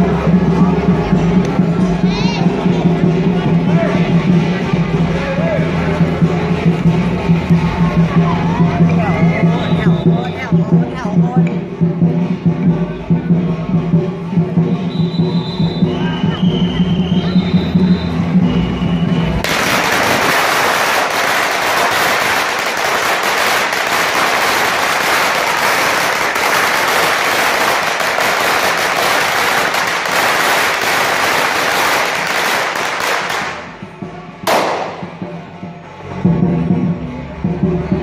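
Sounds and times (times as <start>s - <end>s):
firecrackers crackling: 13.7s - 35.4s.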